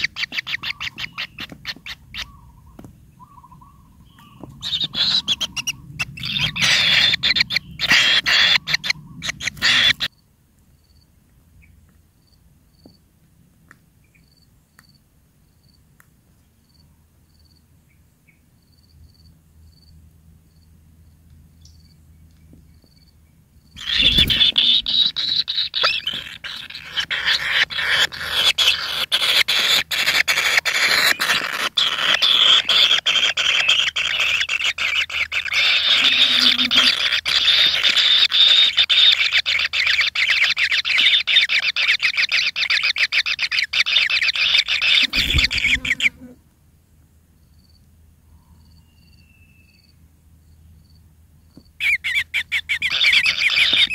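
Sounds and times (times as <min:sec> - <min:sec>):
nestlings begging calls: 0:00.0 - 0:10.1, 0:23.8 - 0:46.4, 0:51.8 - 0:53.9
faint insect chirps: 0:10.1 - 0:11.2, 0:14.1 - 0:15.8, 0:16.5 - 0:22.0, 0:47.4 - 0:51.8.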